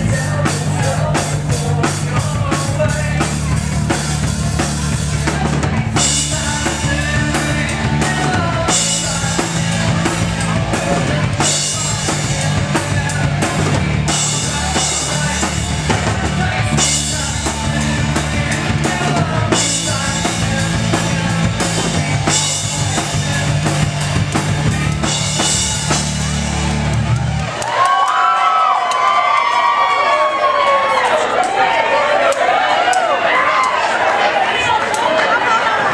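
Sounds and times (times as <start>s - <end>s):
live rock band playing: 0.0s - 27.8s.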